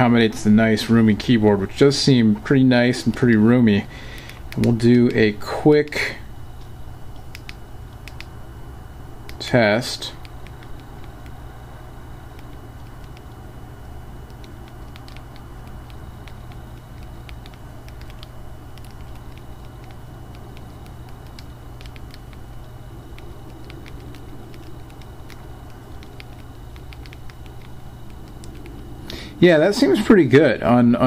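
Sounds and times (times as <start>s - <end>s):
steady low hum: 0.0s - 31.0s
phone keyboard typing clicks: 4.1s - 5.2s, 6.6s - 8.3s, 10.2s - 11.4s, 12.3s - 13.4s, 14.2s - 28.9s.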